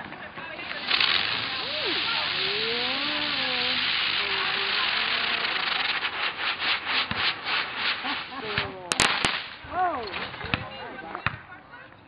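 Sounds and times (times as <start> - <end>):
fountain firework hissing: 0.0 - 10.6
sharp cracks: 0.0 - 10.6.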